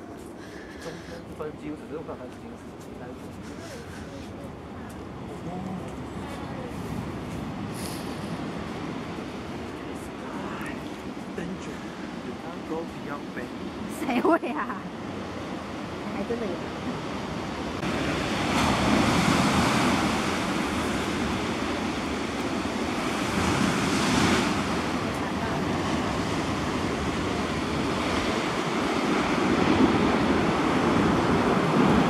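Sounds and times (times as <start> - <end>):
wind on microphone: 15.2 - 32.0
surf breaking against rocks: 17.8 - 32.0.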